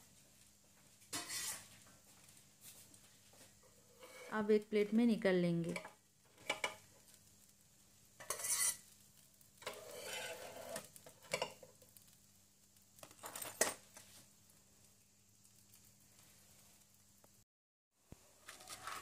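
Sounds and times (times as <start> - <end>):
metal spatula scraping and clinking: 1.1 - 1.8, 3.6 - 4.4, 5.8 - 6.9, 8.2 - 9.0, 9.6 - 11.8.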